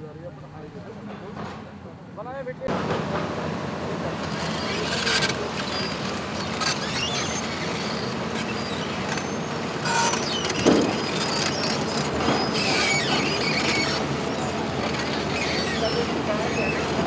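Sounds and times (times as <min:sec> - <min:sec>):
heavy diesel machinery running: 0:02.7 - 0:17.0
rising squeak: 0:04.2 - 0:17.0
metallic knocks and creaks: 0:04.3 - 0:16.0.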